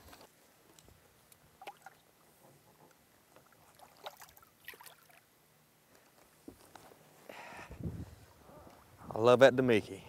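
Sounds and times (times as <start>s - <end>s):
light water sounds: 0.1s - 6.2s.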